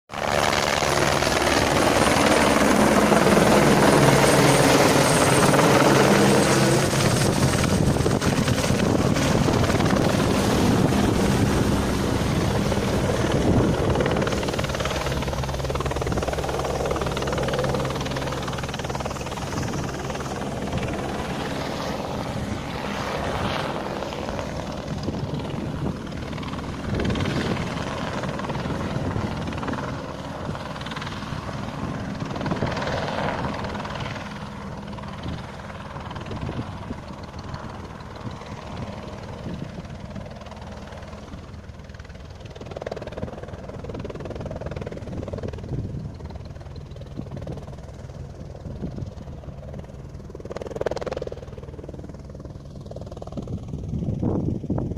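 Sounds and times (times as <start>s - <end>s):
helicopter rotor beating: 0.1s - 54.9s.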